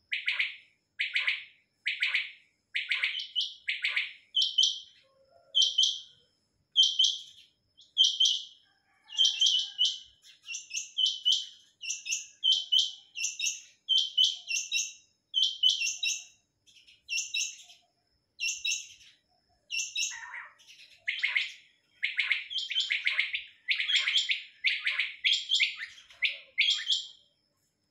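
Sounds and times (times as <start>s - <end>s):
fuller lower bird calls: 0.0s - 27.9s
quails chirping: 6.8s - 16.2s, 19.7s - 27.1s.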